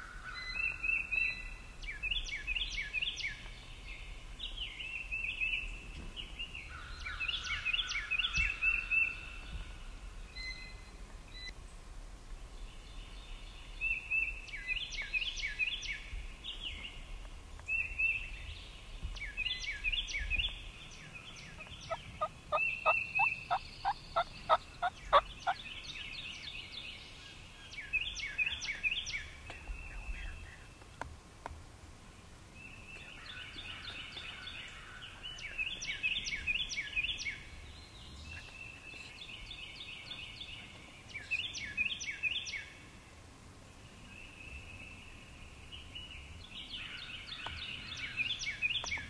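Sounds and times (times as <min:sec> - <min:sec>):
songbirds chirping: 0:00.0 - 0:49.0.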